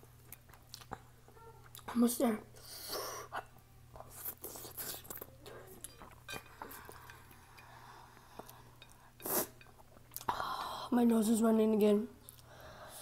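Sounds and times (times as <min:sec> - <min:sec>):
chewing: 0:00.3 - 0:01.9, 0:03.4 - 0:10.3
slurping: 0:04.0 - 0:10.3.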